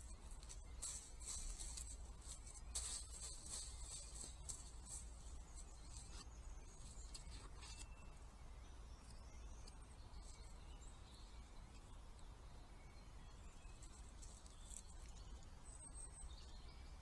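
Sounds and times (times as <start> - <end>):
deer stepping in dry leaves: 0.0 - 8.0, 13.7 - 15.5
low steady hum: 0.0 - 17.0.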